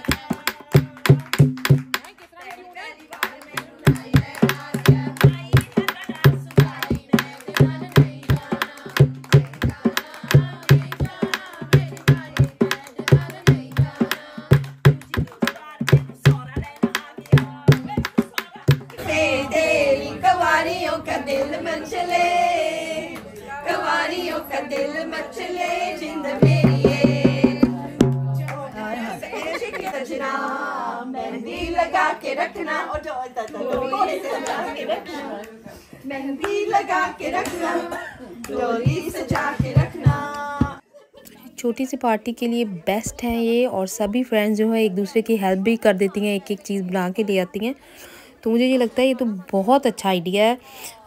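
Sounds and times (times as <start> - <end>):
voices singing: 0.0 - 41.4
hand drum playing: 0.1 - 2.0, 26.4 - 28.6.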